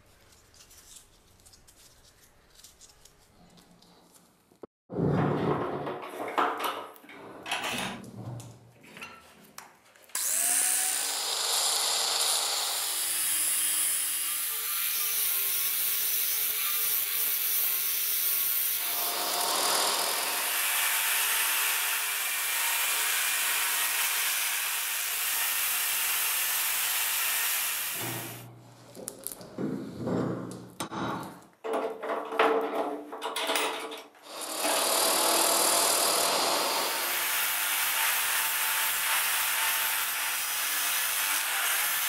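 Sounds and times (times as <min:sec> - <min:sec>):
angle grinder grinding steel: 0:10.2 - 0:28.5, 0:34.3 - 0:42.0.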